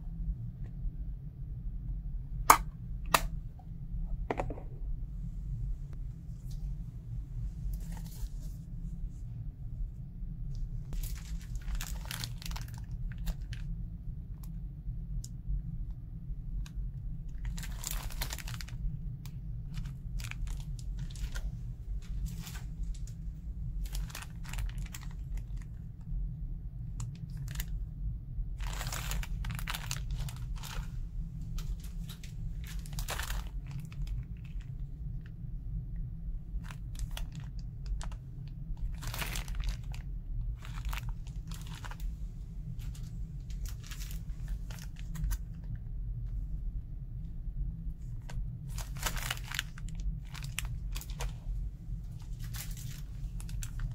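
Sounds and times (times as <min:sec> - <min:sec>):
steady low hum: 0:00.0 - 0:53.9
plastic packaging crinkling: 0:10.9 - 0:13.7, 0:17.4 - 0:18.9, 0:19.7 - 0:23.2, 0:23.8 - 0:25.8, 0:27.0 - 0:27.7, 0:28.6 - 0:34.8, 0:36.6 - 0:38.2, 0:38.8 - 0:45.8, 0:48.7 - 0:51.5, 0:52.2 - 0:53.9.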